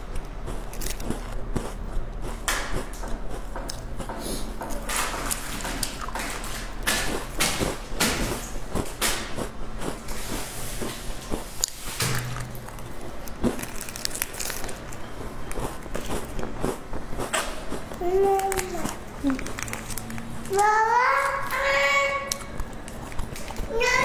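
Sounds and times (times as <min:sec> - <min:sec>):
crunchy chewing: 0:00.0 - 0:23.8
plastic wrapper crinkling and tearing: 0:12.7 - 0:15.1, 0:18.2 - 0:20.6.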